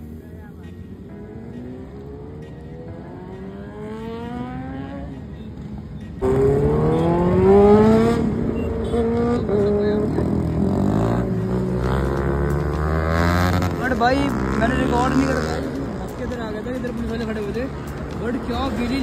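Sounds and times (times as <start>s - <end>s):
motorbike engines accelerating: 0.0s - 19.0s
close motorbike revving: 6.2s - 18.2s.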